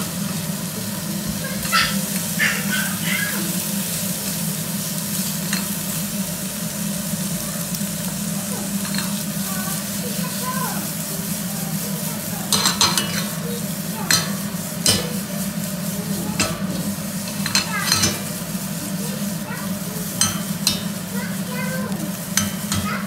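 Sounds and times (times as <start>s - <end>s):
squid sizzling in frying pan: 0.0s - 23.0s
pan knocking on burner grate: 12.5s - 13.4s, 14.0s - 15.3s, 16.2s - 18.4s, 20.1s - 21.1s, 22.3s - 23.0s.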